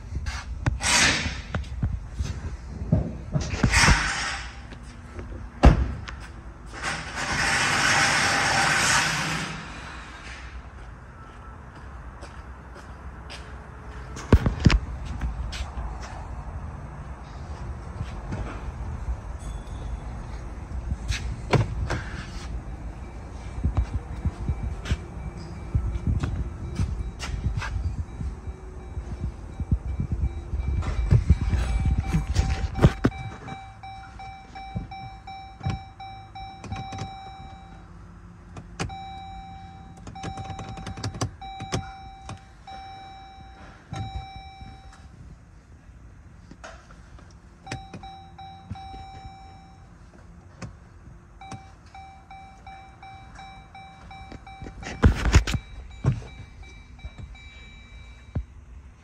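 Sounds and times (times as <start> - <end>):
dashboard warning chime: 21.9 - 38.1, 38.8 - 45.2, 47.6 - 50.1, 51.3 - 58.7.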